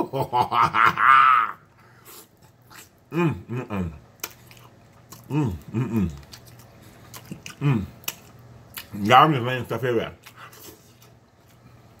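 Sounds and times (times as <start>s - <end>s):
man chewing: 1.6s - 9.0s, 10.2s - 12.0s
man humming mmm: 3.1s - 4.0s, 5.2s - 6.2s, 7.5s - 8.0s.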